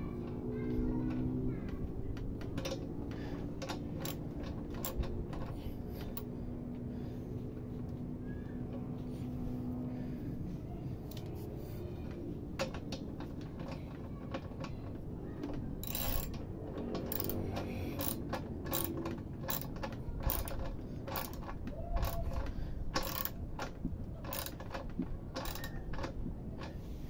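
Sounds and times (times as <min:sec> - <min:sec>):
socket ratchet clicking: 0:02.2 - 0:06.3, 0:15.5 - 0:26.8.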